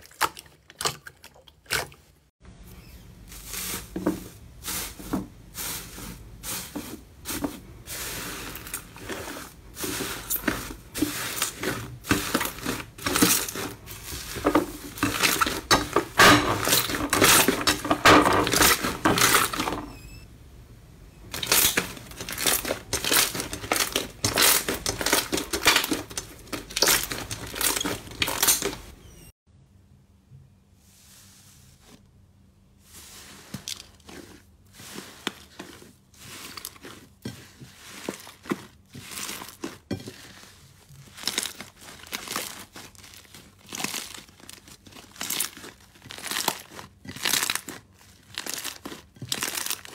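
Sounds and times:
foil flakes crinkling in slime: 5.6s - 19.7s, 21.3s - 28.9s, 33.0s - 49.9s.

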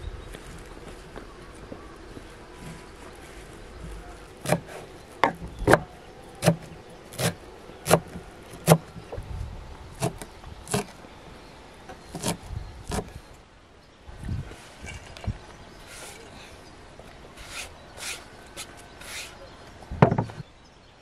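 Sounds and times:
knife chopping on wooden board: 4.4s - 8.9s.

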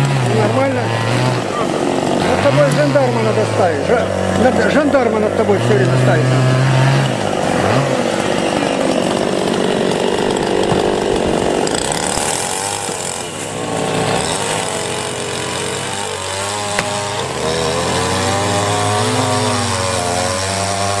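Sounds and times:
chainsaw engine revving: 0.0s - 21.0s
sharp knock: 16.7s - 17.0s.

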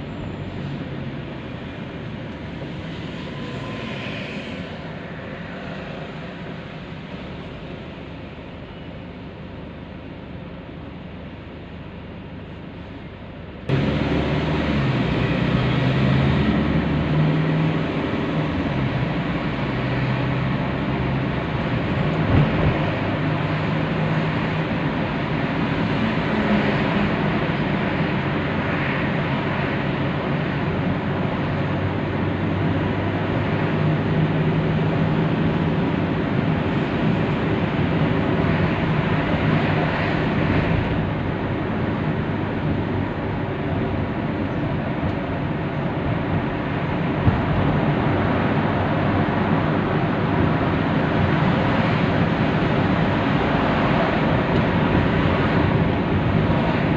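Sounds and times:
tyre and road noise: 0.0s - 56.9s
car engine running: 6.2s - 17.1s.

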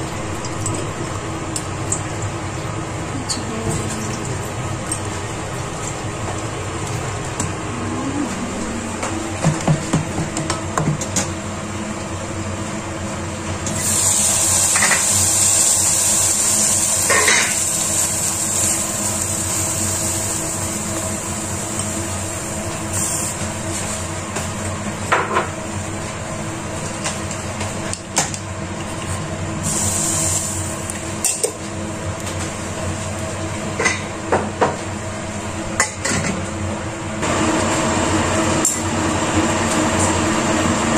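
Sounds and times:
steady hum: 0.0s - 15.3s
hiss: 13.8s - 20.8s, 29.6s - 30.7s.

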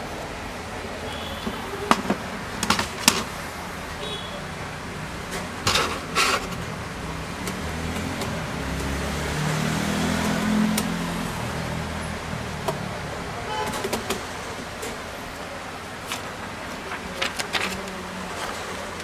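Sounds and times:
vehicle engine passing: 4.6s - 13.5s
scraping handling noise: 5.3s - 6.7s.

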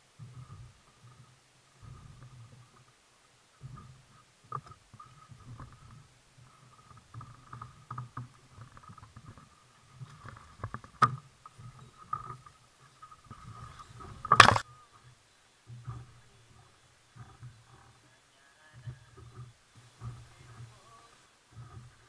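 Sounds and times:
sharp clicks: 14.2s - 14.6s.

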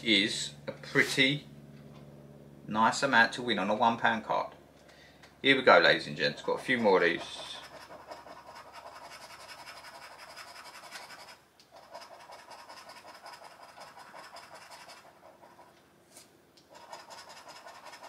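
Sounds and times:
scratch card being scraped: 6.5s - 18.0s.

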